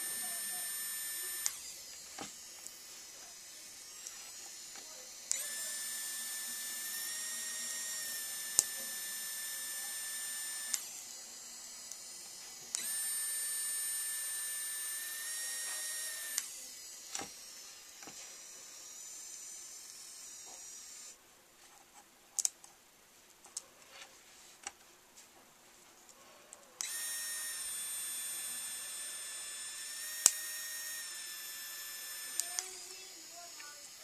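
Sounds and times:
pen motor whining: 0.0s - 21.2s, 26.8s - 34.0s
clicks: 0.8s - 2.8s, 29.8s - 33.7s.

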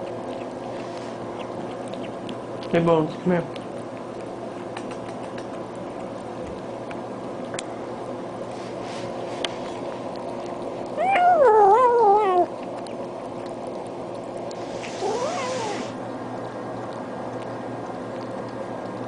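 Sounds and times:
steady low hum: 0.0s - 19.0s
cat meowing: 11.0s - 12.5s, 15.0s - 15.9s.

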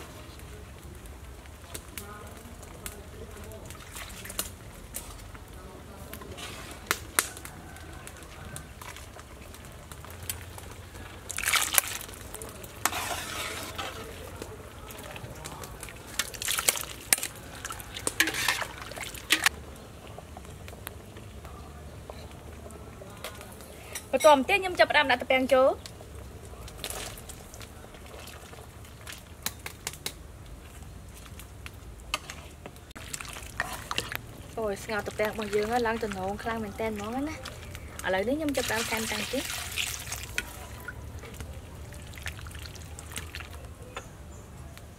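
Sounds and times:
metal ladle stirring food in pot: 6.2s - 19.6s, 32.0s - 44.0s
water sloshing and scraping: 11.0s - 19.5s, 32.1s - 34.2s, 38.5s - 43.6s.

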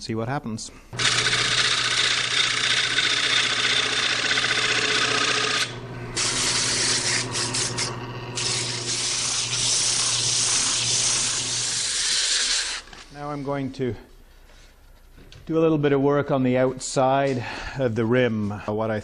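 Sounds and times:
lathe motor hum: 1.0s - 12.9s
sanding spinning wood: 1.0s - 12.9s
gouge scraping spinning wood: 1.0s - 13.0s.

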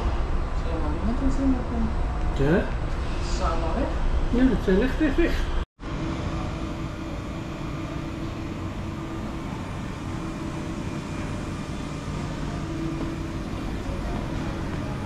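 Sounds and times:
low mechanical drone: 0.0s - 15.0s.

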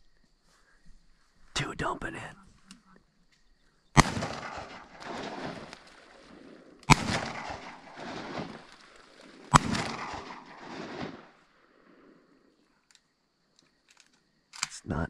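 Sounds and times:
shotgun blasts: 4.0s - 11.6s
rolling echo of gunshots: 4.0s - 12.3s.

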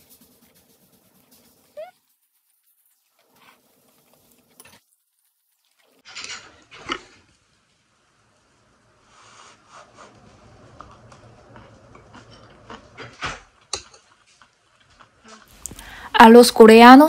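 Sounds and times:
chewing: 0.4s - 6.0s, 10.7s - 16.0s.

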